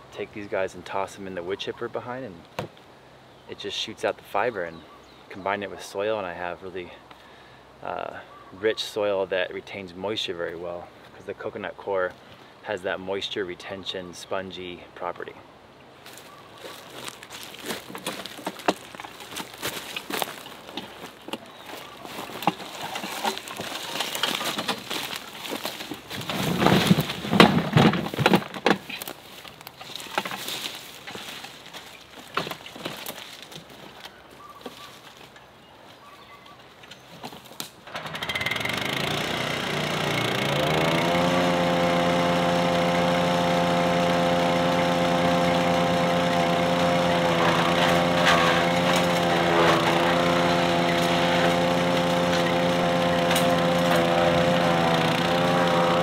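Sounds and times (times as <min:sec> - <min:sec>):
wood chipper petrol engine: 0:16.1 - 0:33.5, 0:37.6 - 0:56.0
wheelbarrow clattering: 0:16.6 - 0:33.7, 0:37.3 - 0:56.0.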